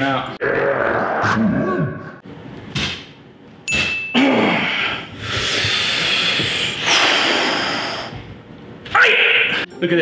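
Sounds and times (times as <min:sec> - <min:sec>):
man grunting: 0:04.2 - 0:04.9.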